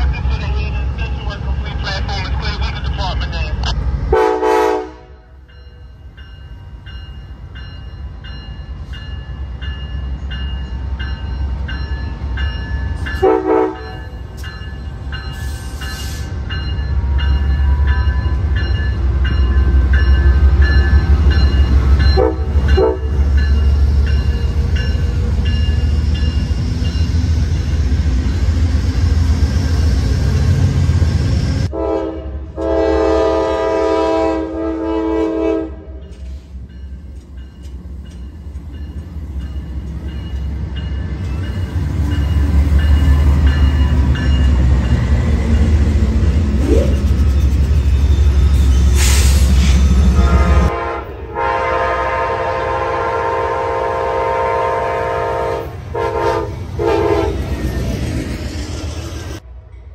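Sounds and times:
train rumbling past: 0.0s - 59.9s
multi-tone train horn: 4.1s - 5.4s, 13.2s - 14.1s, 22.0s - 23.3s, 31.6s - 36.1s, 50.0s - 57.5s.

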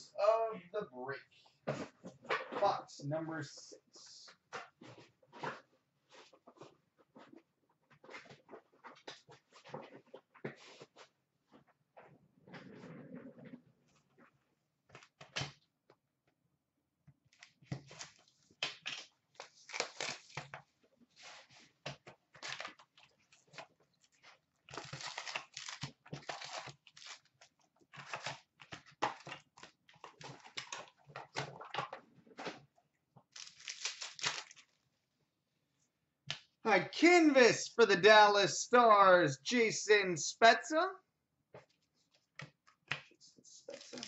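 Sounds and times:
foil packs tearing and crinkling: 17.9s - 20.5s, 24.7s - 27.3s, 33.3s - 34.7s, 43.7s - 44.0s.

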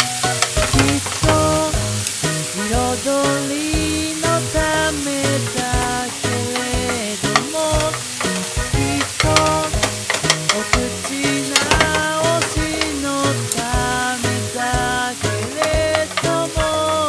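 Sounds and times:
background music: 0.0s - 17.0s
meat sizzling in a frying pan: 0.0s - 17.0s
chopsticks clicking against pan: 4.8s - 13.8s, 15.2s - 17.0s.

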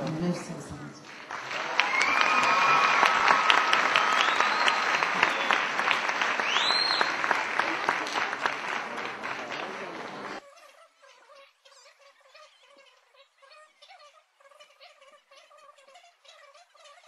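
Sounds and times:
audience applauding: 1.0s - 10.4s
high held calls: 1.1s - 10.4s.

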